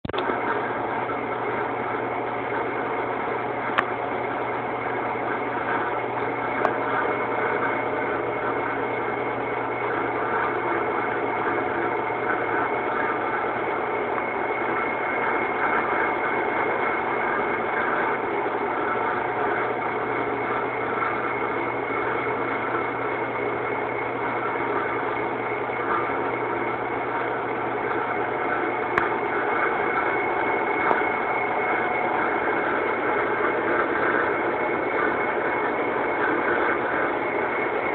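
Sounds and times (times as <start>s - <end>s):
lathe running with high whine: 0.1s - 37.9s.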